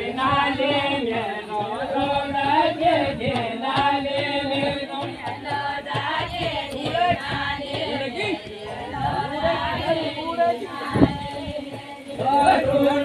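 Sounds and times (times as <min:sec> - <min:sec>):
group singing folk song: 0:00.0 - 0:13.0.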